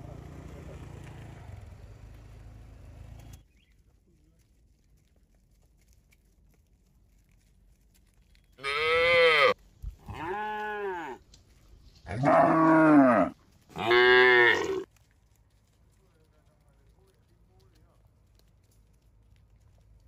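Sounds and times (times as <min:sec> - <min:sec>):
cattle mooing: 0:08.6 - 0:11.2, 0:12.1 - 0:14.8.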